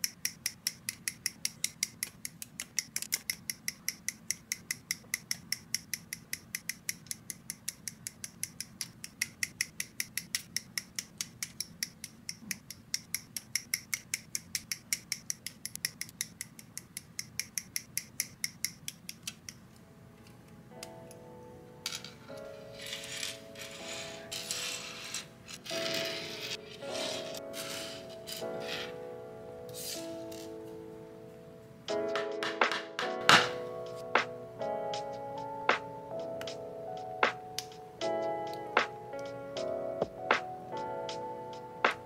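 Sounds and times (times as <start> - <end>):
soft lo-fi music: 19.5 - 42.0.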